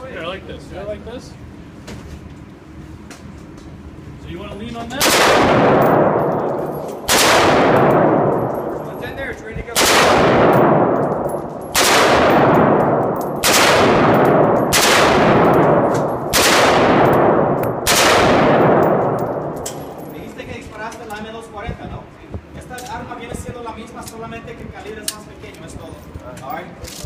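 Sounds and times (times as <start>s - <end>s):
reverberant ring of indoor range: 1.3s - 21.6s
rifle single shots: 5.0s - 8.9s, 9.7s - 20.1s.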